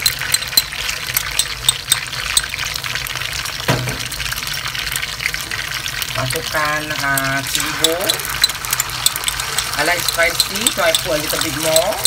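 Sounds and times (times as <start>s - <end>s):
hot oil sizzling in a wok: 0.0s - 12.0s
wooden spatula stirring: 7.0s - 12.0s.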